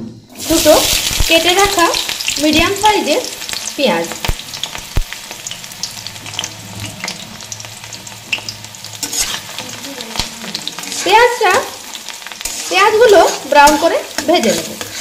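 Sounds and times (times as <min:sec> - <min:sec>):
onions sizzling in hot oil: 0:00.3 - 0:15.0.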